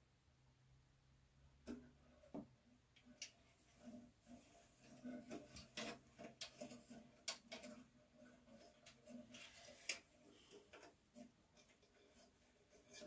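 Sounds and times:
small metal parts clicking and rattling: 4.8s - 13.0s.

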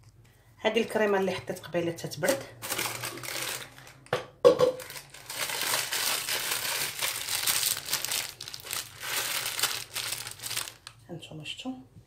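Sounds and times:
plastic piping bag crinkling: 2.6s - 4.0s, 4.8s - 11.0s.

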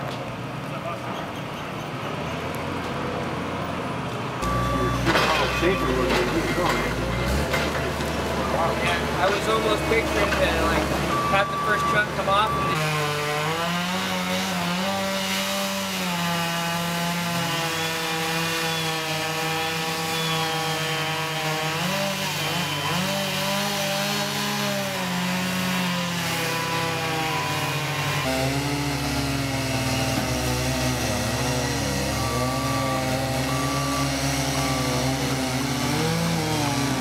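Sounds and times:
diesel engine rumble: 0.0s - 13.8s, 26.2s - 37.0s
short beeps: 4.4s - 6.0s, 11.1s - 12.8s, 32.2s - 35.0s
chainsaw cutting wood: 4.4s - 37.0s.

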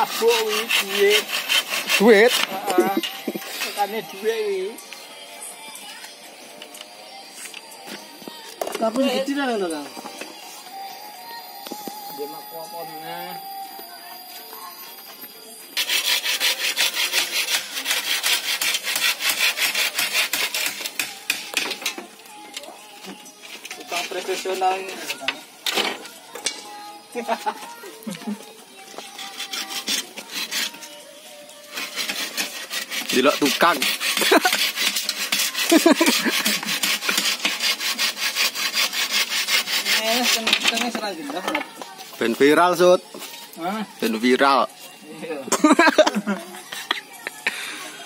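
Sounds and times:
hand saw cutting bamboo: 0.0s - 4.0s, 15.8s - 22.0s, 29.0s - 30.9s, 31.7s - 41.1s.

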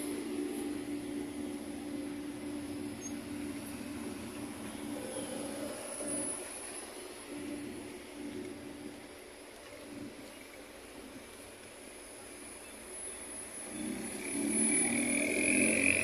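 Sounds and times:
electric bus drive hum: 0.0s - 16.0s.

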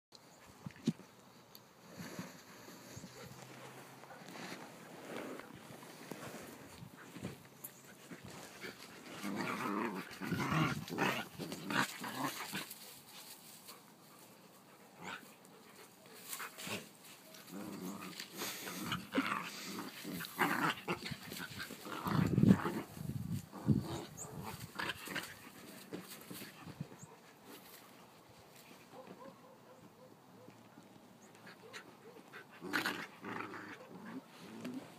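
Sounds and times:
dogs growling: 3.1s - 12.8s, 14.9s - 15.4s, 16.6s - 26.8s, 31.4s - 34.9s.

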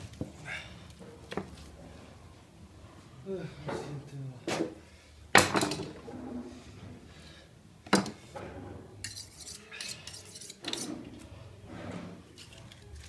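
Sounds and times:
metal knives clinking: 9.0s - 10.9s.

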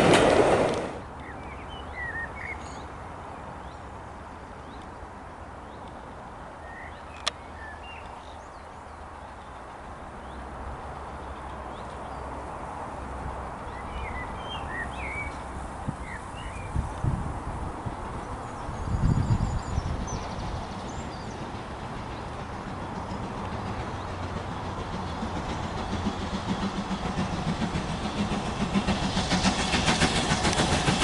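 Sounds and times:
small birds chirping: 18.2s - 26.2s.

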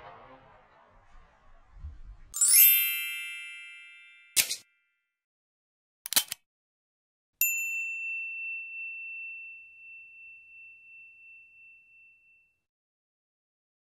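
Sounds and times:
bell ding: 2.4s - 4.8s, 7.4s - 12.6s.

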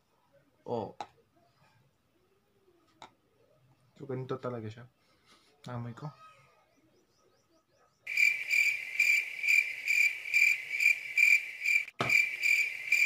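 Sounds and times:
crickets chirping: 8.1s - 13.0s.

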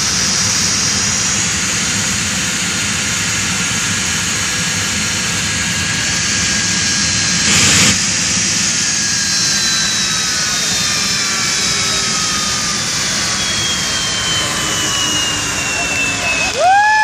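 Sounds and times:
jet turbine engine whine: 0.0s - 17.0s.

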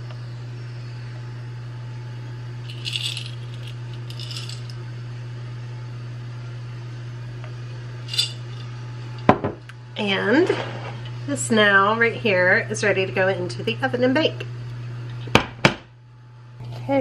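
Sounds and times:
steady low hum: 0.0s - 17.0s
chocolate chips rattling in glass jar: 2.7s - 4.7s, 8.1s - 8.6s.

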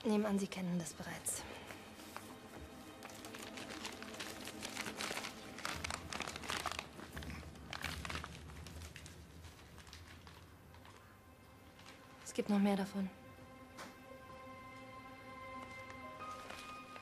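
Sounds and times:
paper rustling and crinkling: 2.0s - 12.4s, 15.5s - 17.0s.

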